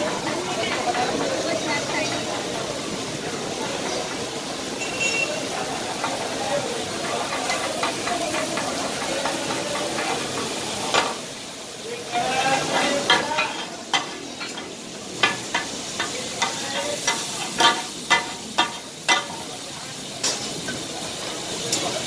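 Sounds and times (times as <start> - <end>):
steel blades clattering on griddle: 0.0 - 2.3, 5.9 - 11.3, 12.1 - 19.6, 20.2 - 20.9
meat sizzling: 0.0 - 22.0.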